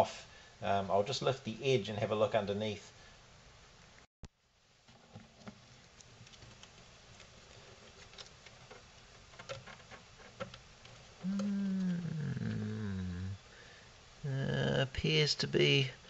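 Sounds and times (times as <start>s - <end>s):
man humming: 11.2s - 13.5s, 14.2s - 14.8s.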